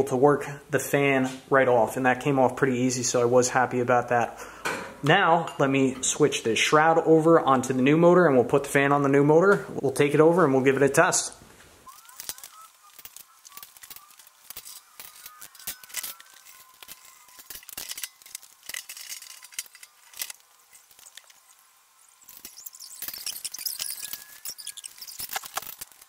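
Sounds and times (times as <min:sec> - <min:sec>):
metal tools clinking on nuts: 0:12.2 - 0:20.4, 0:22.3 - 0:26.0.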